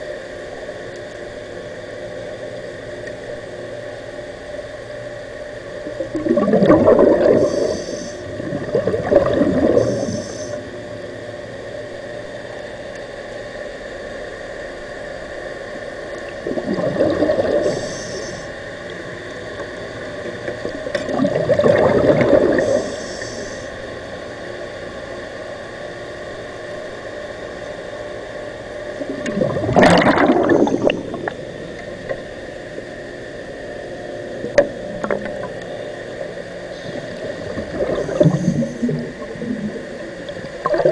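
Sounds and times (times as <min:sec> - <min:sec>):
steady hum: 0:00.0 - 0:40.9
underwater breath bubbling: 0:05.8 - 0:10.7, 0:16.3 - 0:18.7, 0:20.6 - 0:23.8, 0:29.0 - 0:31.6, 0:36.7 - 0:40.9.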